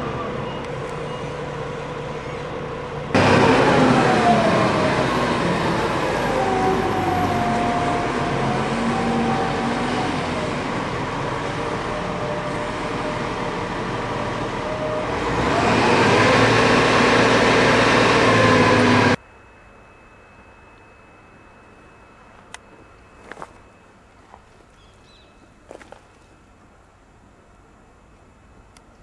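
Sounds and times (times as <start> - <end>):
diesel engine revving under load: 0.0 - 19.2.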